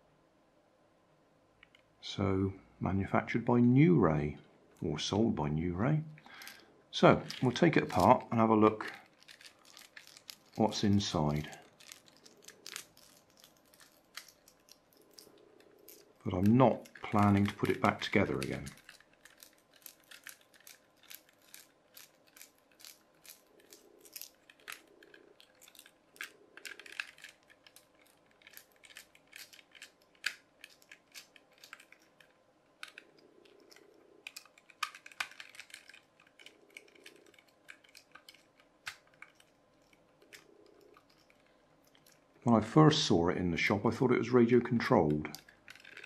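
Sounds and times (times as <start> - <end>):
screws squeaking in plastic: 7.2 - 42.2, 45.3 - 46.0.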